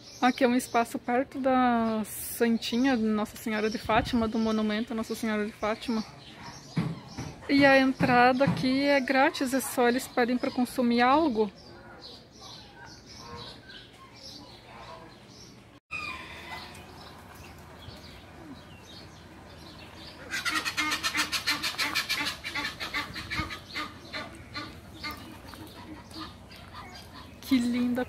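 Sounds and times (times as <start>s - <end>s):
fowl calling: 20.1s - 27.9s.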